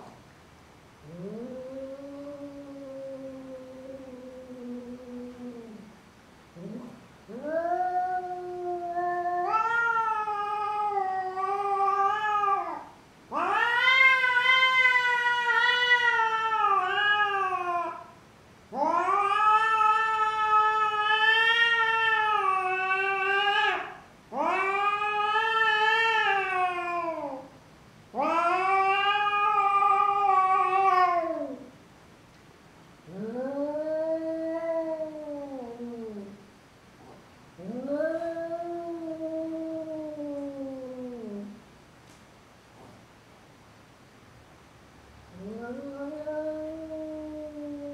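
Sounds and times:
cat yowling: 6.6 - 18.1, 18.7 - 27.5, 28.1 - 31.7, 33.1 - 36.4, 37.6 - 41.6, 45.3 - 47.9.

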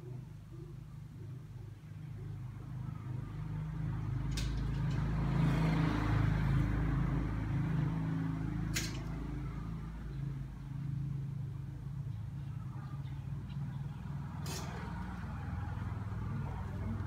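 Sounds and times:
vehicle engine running: 2.0 - 17.0
wire hangers clicking: 4.1 - 5.2, 8.7 - 9.3, 14.4 - 15.0.

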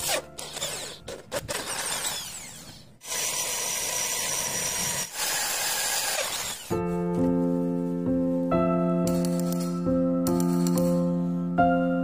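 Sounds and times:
electric drill boring metal: 0.0 - 6.8.

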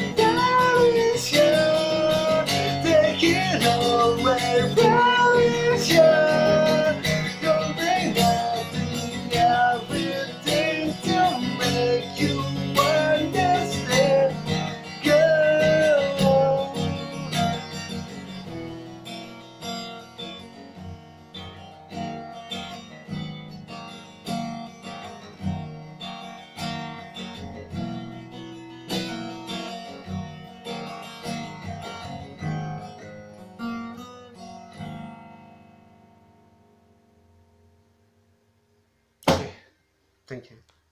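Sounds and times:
man singing: 0.0 - 17.8
acoustic guitar: 0.0 - 40.0.

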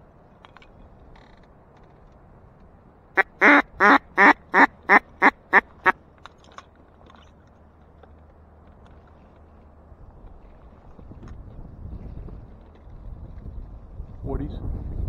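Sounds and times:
duck call quacks: 3.2 - 6.0.

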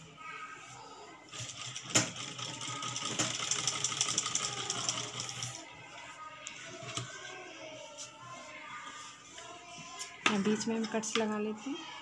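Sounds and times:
sewing machine clatter: 1.3 - 5.6.

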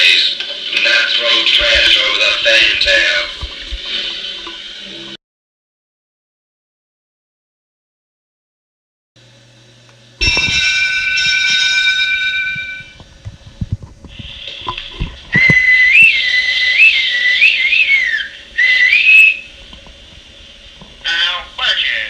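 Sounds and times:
high whistle warbling: 15.3 - 19.6.

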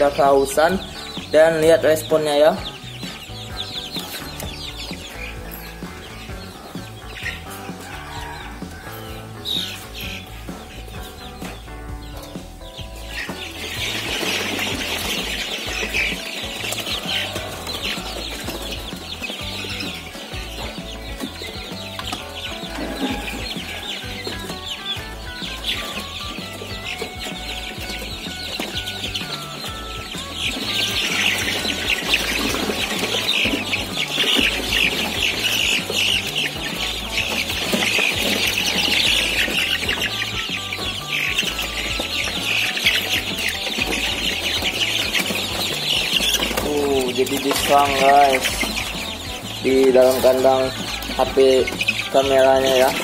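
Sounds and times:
chicks peeping: 0.0 - 53.0.

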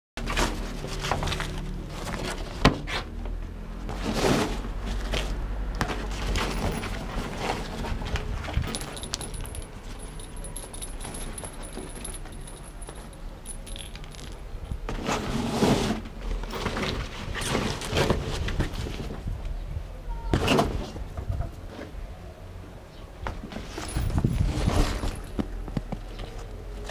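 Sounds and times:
light metallic jingling: 6.4 - 7.1, 8.6 - 14.8, 23.7 - 25.4
fabric tunnel rustling: 23.6 - 25.3.

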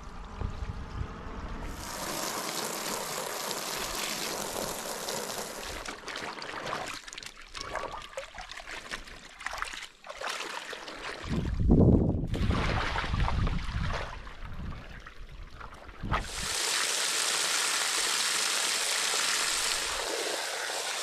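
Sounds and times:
low rumble: 0.0 - 1.9
hose nozzle spraying water: 1.7 - 6.0, 16.2 - 21.0
water sloshing in a tub: 3.7 - 16.4.

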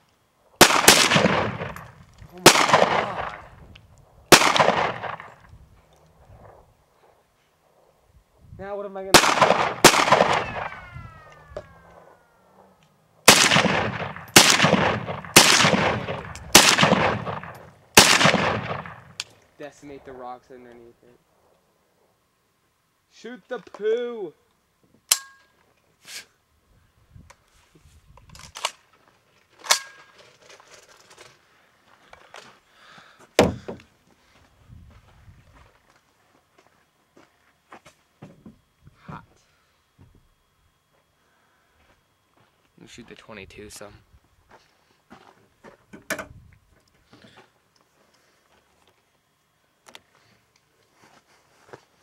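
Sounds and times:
rifle shots echoing: 0.6 - 3.6, 4.3 - 5.5, 9.1 - 12.2, 13.2 - 19.3.

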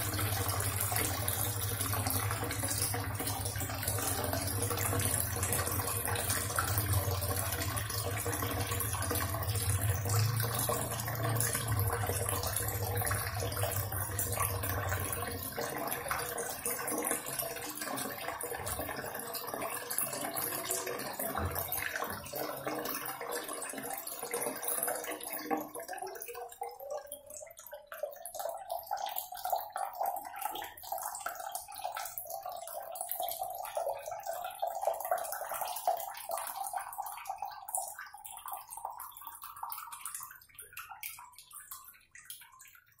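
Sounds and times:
tap water running and splashing: 0.0 - 43.0.

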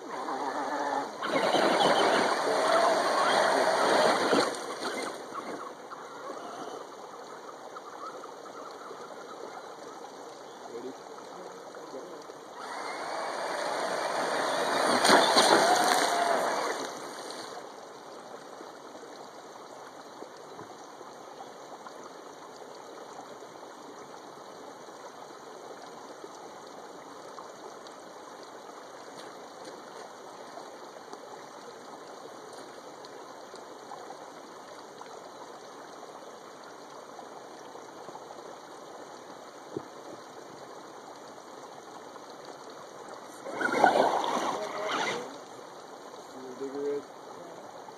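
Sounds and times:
creek water running: 0.0 - 47.9
toy truck splashing through water: 0.3 - 5.2, 12.6 - 17.6, 43.4 - 45.4
faint motor whine: 12.0 - 17.7.

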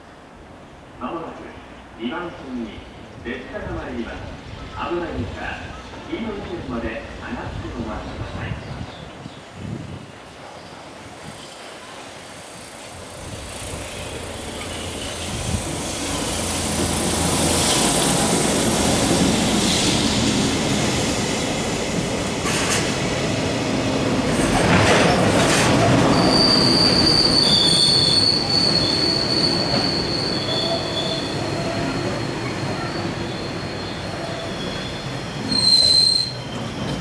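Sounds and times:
train wheels rumbling on rail: 3.4 - 37.0
high-pitched wheel squeal: 26.0 - 36.8
second squeal tone: 26.0 - 36.8.

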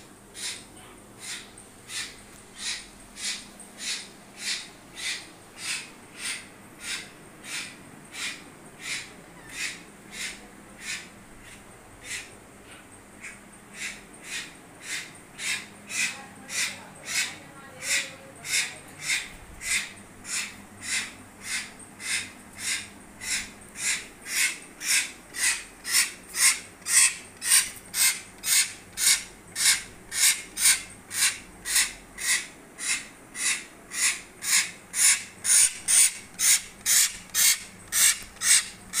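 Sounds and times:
bird rasping begging calls: 0.4 - 39.0.

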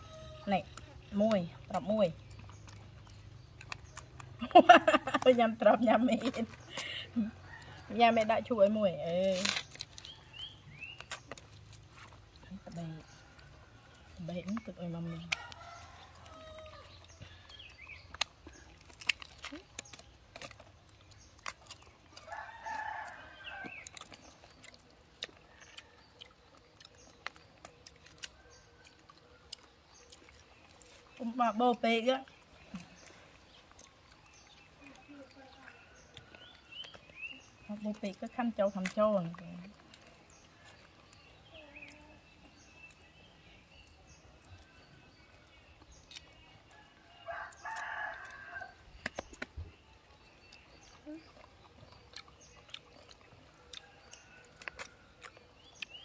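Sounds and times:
rooster crowing: 15.3 - 17.0, 22.2 - 23.8, 46.7 - 48.8.

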